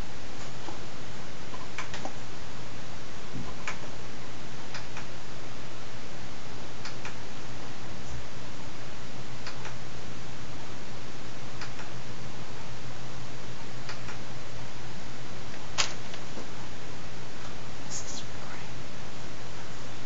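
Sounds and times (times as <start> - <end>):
steady hiss: 15.0 - 20.0.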